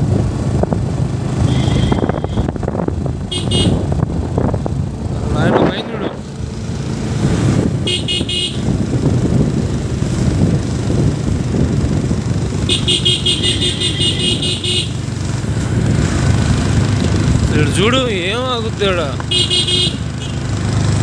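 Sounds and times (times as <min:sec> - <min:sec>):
motorcycle engine and road noise: 0:00.0 - 0:21.0
motorcycle horn beeping: 0:01.4 - 0:02.6, 0:03.3 - 0:03.9, 0:07.8 - 0:08.8, 0:12.7 - 0:15.0, 0:19.3 - 0:20.4.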